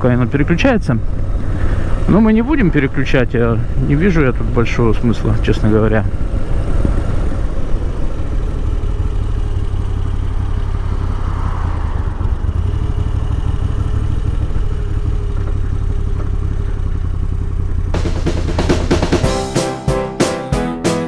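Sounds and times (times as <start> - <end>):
motorcycle engine running: 0.0 - 20.3
drum-led music: 17.9 - 21.0.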